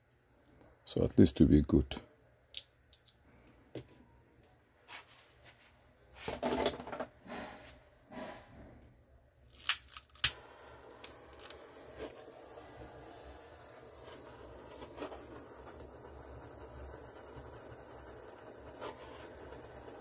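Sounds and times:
heat tool ignition clicks: 0:09.6 - 0:20.0
burner hissing: 0:09.8 - 0:20.0.

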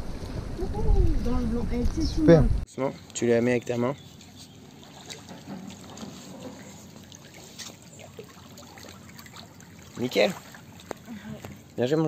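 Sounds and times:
stream trickling: 0:03.0 - 0:12.0.

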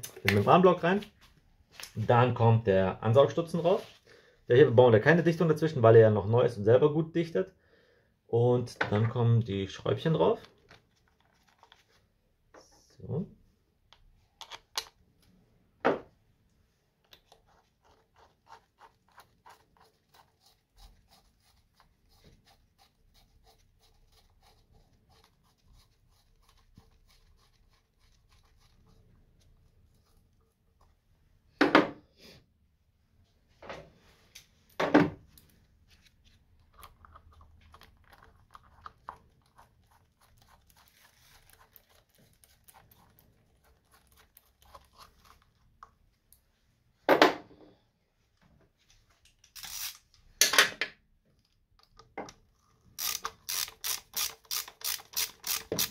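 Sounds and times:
screws tightened with hand tool: 0:49.5 - 0:50.0, 0:53.0 - 0:55.9.

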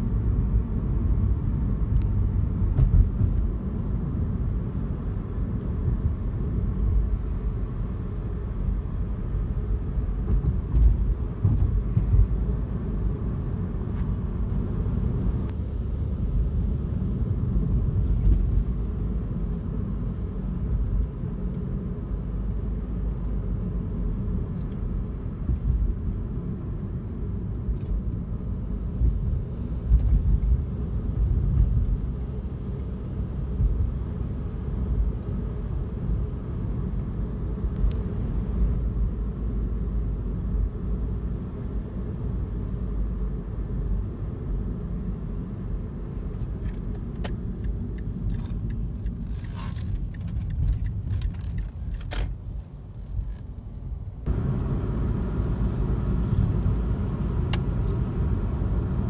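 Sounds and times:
car engine and tyre rumble: 0:00.0 - 0:59.0.

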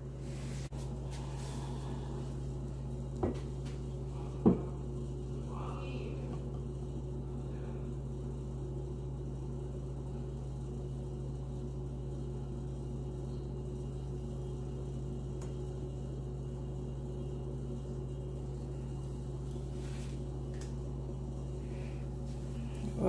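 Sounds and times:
low mechanical hum: 0:00.0 - 0:23.0.

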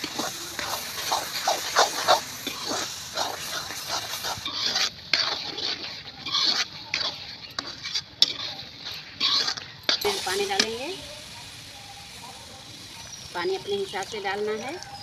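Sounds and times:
spatula scraping metal pan: 0:00.0 - 0:10.8
food sizzling: 0:00.0 - 0:15.0.

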